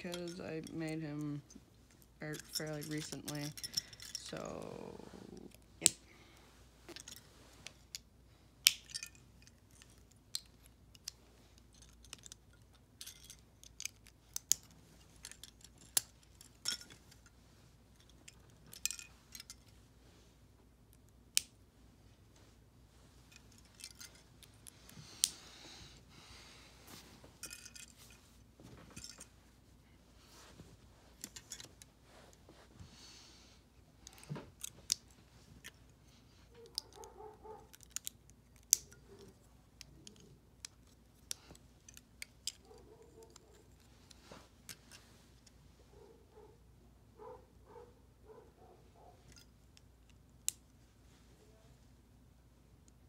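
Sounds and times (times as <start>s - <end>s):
plastic pieces clicking and snapping: 9.7s - 16.9s, 37.7s - 42.7s.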